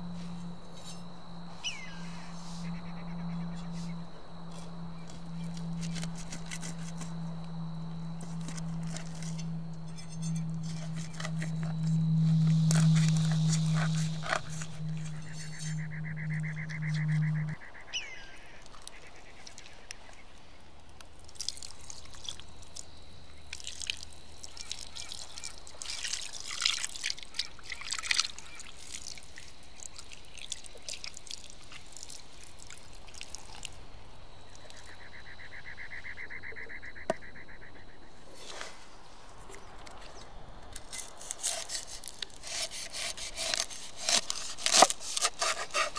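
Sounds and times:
steady low hum: 0.0 - 21.1
cleaver scraping fish: 3.5 - 7.4, 8.1 - 17.6, 40.7 - 45.9.

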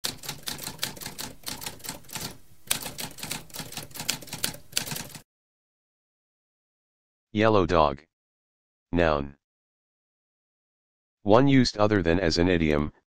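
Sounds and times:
typewriter keys clacking: 0.0 - 5.2.

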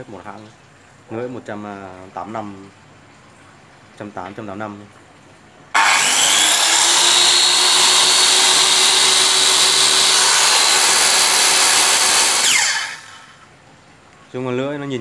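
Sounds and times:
circular saw motor whine: 5.8 - 13.4.

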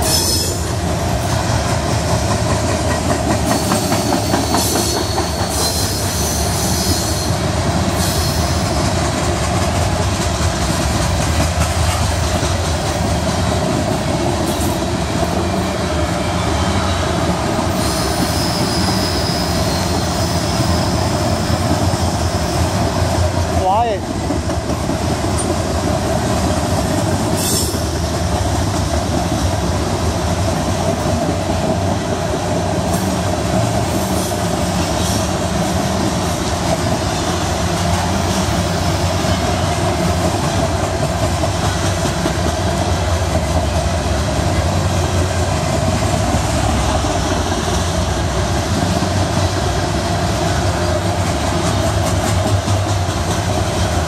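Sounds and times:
freight train wheels rumbling on rails: 0.0 - 54.0.

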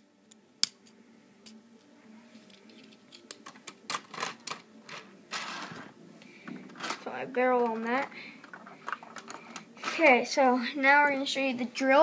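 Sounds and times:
plastic bricks clicking: 6.7 - 9.7.

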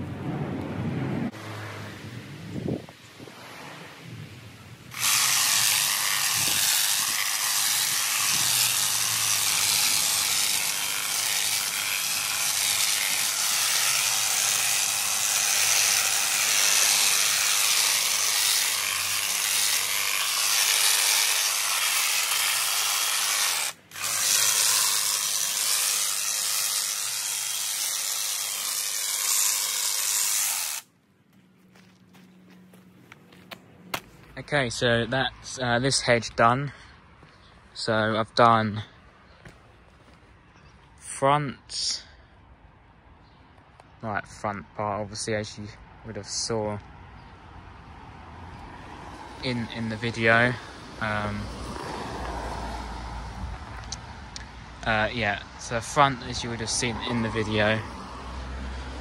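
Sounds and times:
hedge trimmer cutting foliage: 4.9 - 30.9, 55.3 - 59.0.

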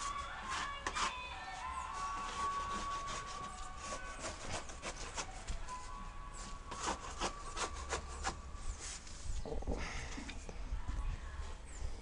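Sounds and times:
scraping on plaster wall: 0.0 - 5.4.

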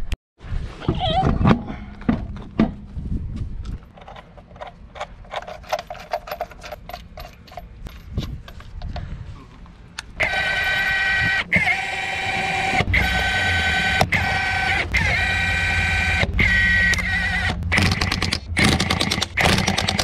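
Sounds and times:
impact wrench whine: 10.2 - 20.0.

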